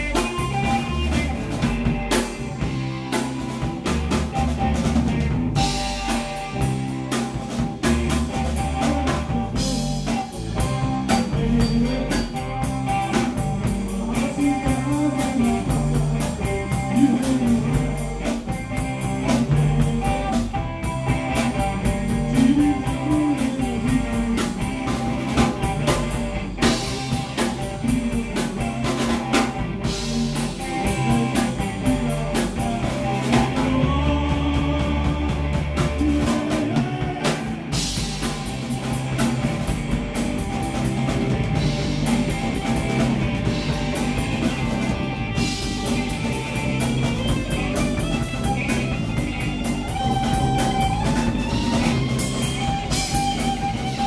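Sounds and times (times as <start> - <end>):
drum kit beat: 0.0 - 54.0
electric bass: 0.0 - 54.0
electric guitar: 0.0 - 54.0
man singing: 8.4 - 26.0, 26.6 - 37.8.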